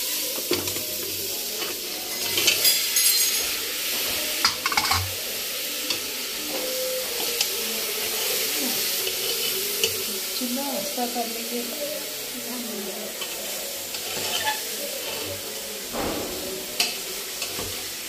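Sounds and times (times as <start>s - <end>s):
vegetables sizzling in oil: 0.0s - 18.0s
ladle scraping against pot: 13.2s - 15.3s.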